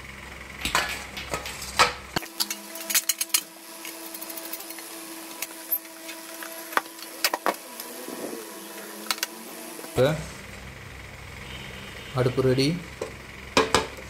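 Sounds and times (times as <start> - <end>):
metal parts clicking and knocking: 0.6 - 4.8.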